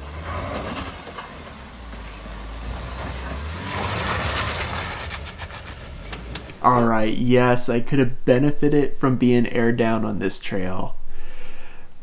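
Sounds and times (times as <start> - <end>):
car engine rumbling under load: 0.0 - 10.1.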